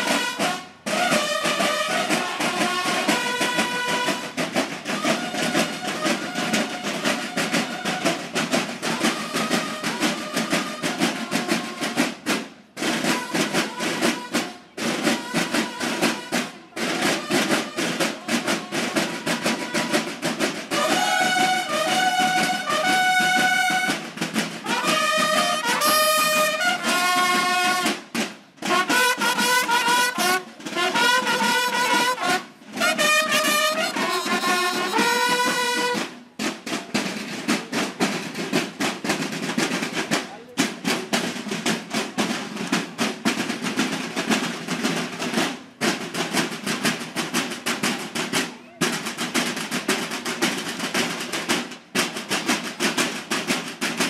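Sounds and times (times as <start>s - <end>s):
bugle fanfare calls: 0.0s - 12.1s, 13.0s - 28.0s, 28.6s - 36.2s
drums beating a rapid cadence: 0.0s - 54.0s.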